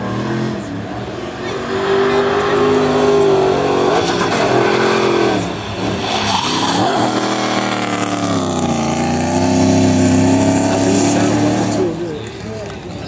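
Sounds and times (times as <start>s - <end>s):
car engine revving hard: 0.0s - 12.0s
tyres screeching: 1.4s - 11.9s.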